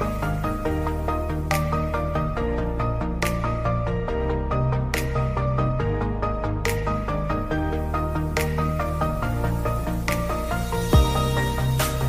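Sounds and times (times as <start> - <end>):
gentle instrumental music: 0.0 - 12.0.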